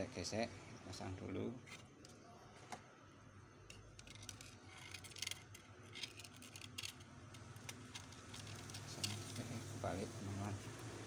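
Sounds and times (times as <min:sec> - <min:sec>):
tape rustling and clicking: 0:03.7 - 0:09.5.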